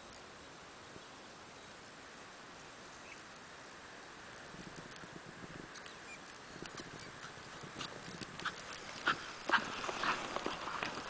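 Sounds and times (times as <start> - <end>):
dog paws crunching through snow: 6.1 - 11.0.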